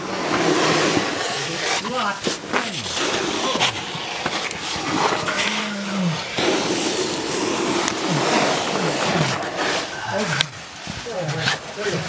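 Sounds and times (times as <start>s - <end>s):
backpack scraping against rock: 0.0s - 12.0s.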